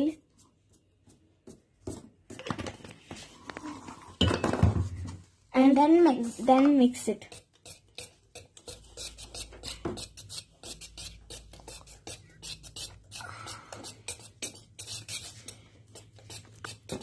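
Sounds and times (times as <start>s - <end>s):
whisk scraping metal bowl: 6.3s - 17.0s.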